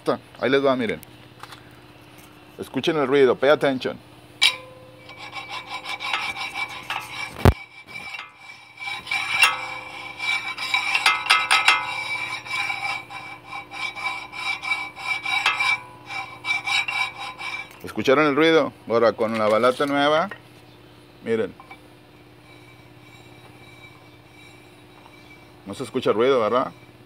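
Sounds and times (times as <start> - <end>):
metal-on-metal brake scraping: 4.4 - 18.5, 21.5 - 27.0
steady high ringing tone: 4.4 - 20.6, 21.2 - 27.0.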